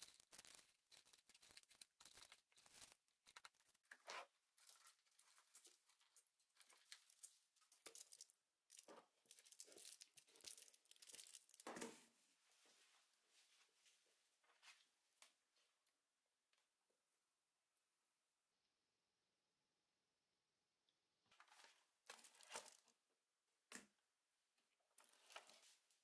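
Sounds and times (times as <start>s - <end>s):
aluminium foil crinkling: 0.0s - 11.7s, 22.0s - 22.9s.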